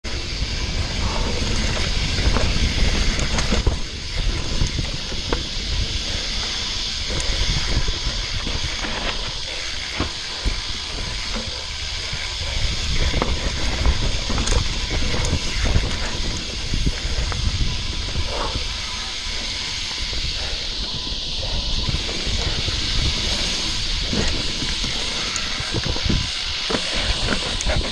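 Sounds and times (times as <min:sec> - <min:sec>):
wind hiss on microphone: 0:00.0 - 0:27.9
bike rattling over rocks: 0:00.1 - 0:27.9.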